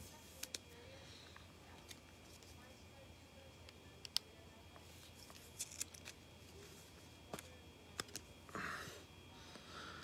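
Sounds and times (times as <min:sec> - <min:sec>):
soft card rustle: 0:01.6 - 0:02.8, 0:04.7 - 0:08.3.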